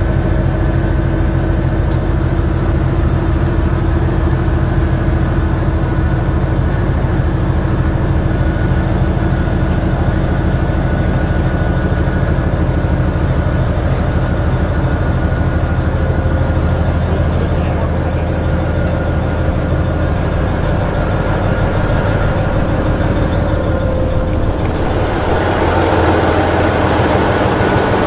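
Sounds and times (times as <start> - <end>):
diesel engine drone: 0.0 - 28.0.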